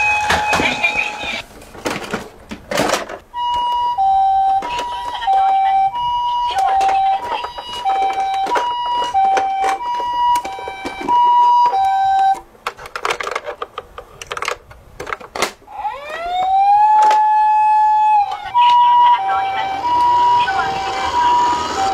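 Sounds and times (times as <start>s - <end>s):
toy siren wailing: 3.4s - 12.4s, 15.7s - 21.9s
plastic toy clicks and knocks: 6.6s - 11.8s, 12.6s - 15.6s, 17.0s - 17.3s.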